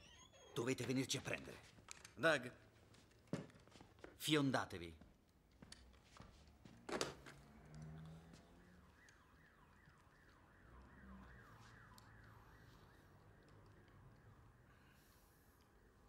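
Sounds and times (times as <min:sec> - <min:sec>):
electronic siren falling sweep: 0:07.5 - 0:14.7.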